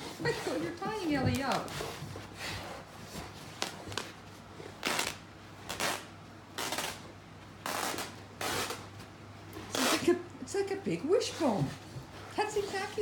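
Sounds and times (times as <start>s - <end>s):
dogs tugging cloth blanket: 0.0s - 7.0s, 9.6s - 10.1s.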